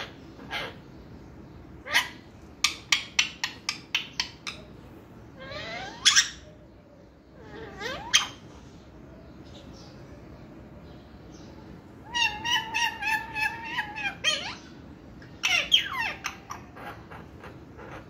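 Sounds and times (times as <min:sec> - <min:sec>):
parrot chirps: 0:00.0 - 0:00.9, 0:01.8 - 0:06.7, 0:07.4 - 0:08.7, 0:12.0 - 0:18.0
parrot calling: 0:00.0 - 0:08.7, 0:11.9 - 0:18.0.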